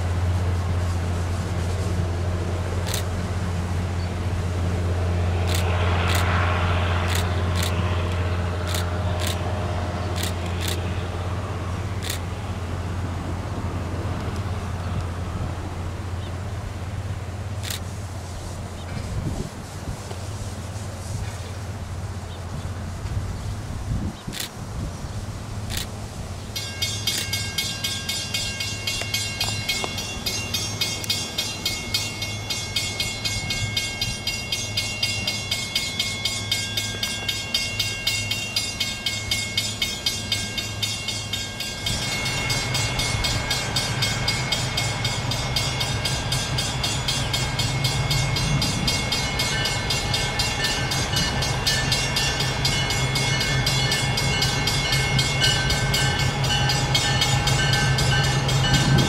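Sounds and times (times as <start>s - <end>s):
train wheels clicking over rail joints: 0.0s - 11.1s, 11.7s - 12.6s, 24.2s - 24.6s, 25.6s - 59.0s
deep steady train running: 0.0s - 59.0s.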